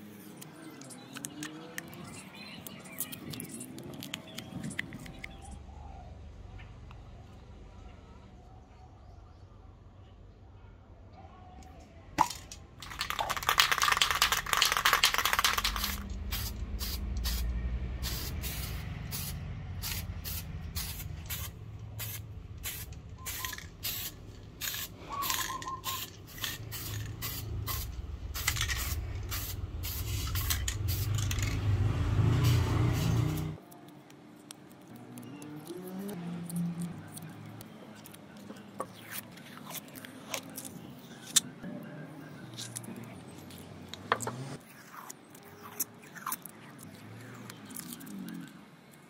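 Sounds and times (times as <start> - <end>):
aerosol paint spraying: 13.2 - 31.6, 32.4 - 33.6.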